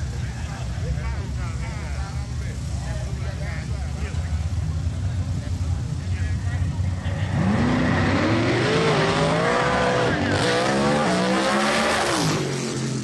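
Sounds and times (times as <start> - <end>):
racing car engines at high revs: 6.6 - 13.0.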